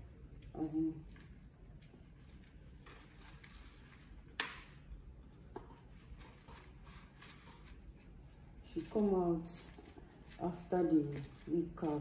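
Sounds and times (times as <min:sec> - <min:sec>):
hair rustling: 0:05.8 - 0:12.0.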